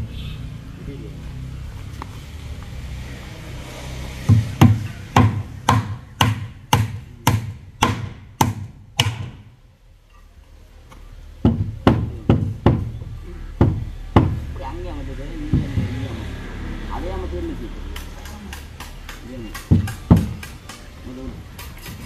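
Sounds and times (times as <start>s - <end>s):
hammer striking wooden boards: 4.2s - 9.5s, 11.4s - 12.9s, 13.6s - 14.4s, 18.0s - 20.9s.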